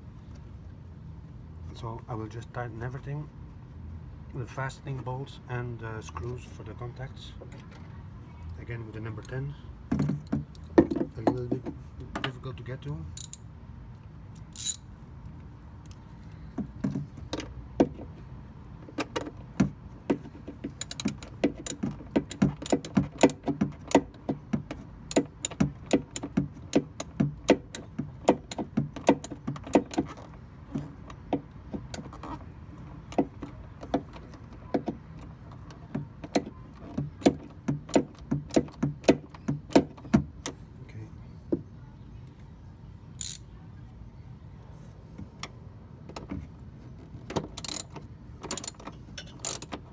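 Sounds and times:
hand ratchet clicking: 20.8 - 24.0, 47.6 - 47.9, 48.5 - 49.8.

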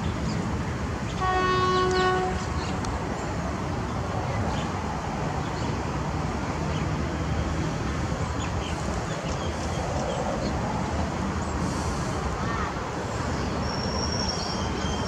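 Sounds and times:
diesel locomotive engine rumbling: 0.0 - 5.4, 6.0 - 15.0.

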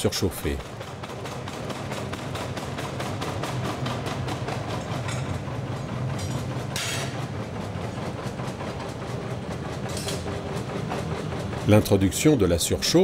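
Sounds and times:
machine hum: 0.0 - 13.0
forging machine hammering: 0.7 - 7.5.

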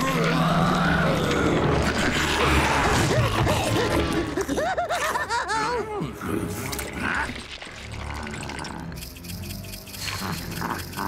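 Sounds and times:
monster roaring: 0.0 - 4.4
dramatic cartoon music: 0.0 - 11.0.

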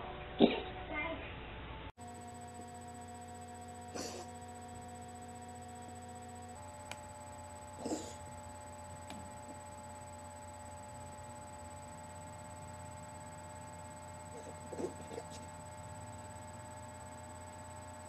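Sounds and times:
electrical hum: 0.0 - 18.0
cat coughing: 3.9 - 4.3, 7.8 - 8.2, 14.4 - 15.4.

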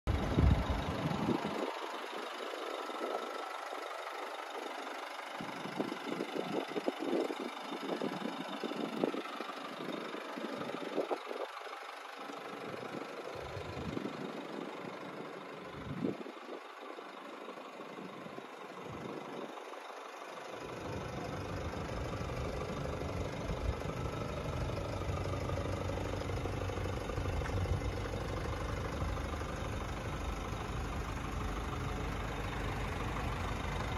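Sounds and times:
diesel engine idling: 0.1 - 33.9.

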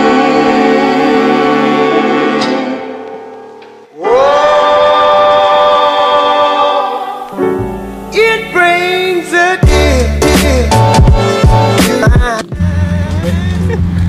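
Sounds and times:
music with singing: 0.0 - 14.0
low bass: 9.6 - 14.0.

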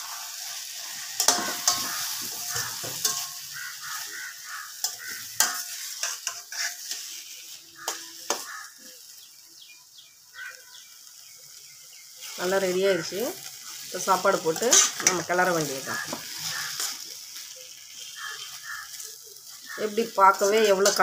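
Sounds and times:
spatula scraping pan: 0.0 - 8.8, 13.4 - 21.0
mango sizzling in hot oil: 0.0 - 21.0.

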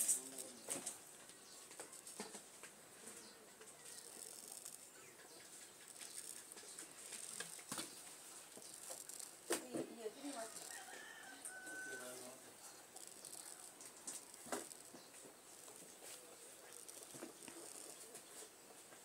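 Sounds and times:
razor blade scraping scalp: 3.8 - 18.4.

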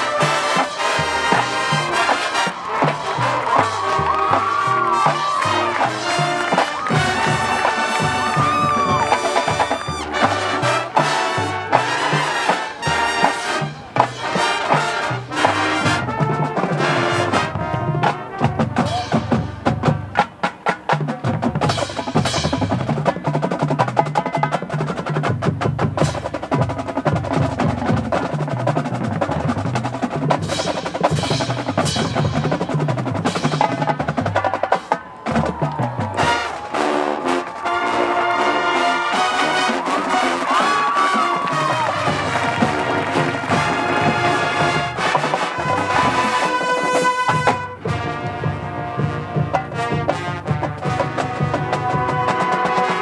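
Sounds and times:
low brass notes: 0.0 - 20.0, 33.3 - 53.0
snare drum rolls: 0.0 - 53.0.

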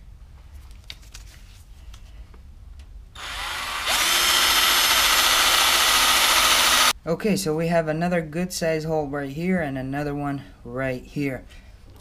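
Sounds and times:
power drill boring into rubber: 3.2 - 6.9.

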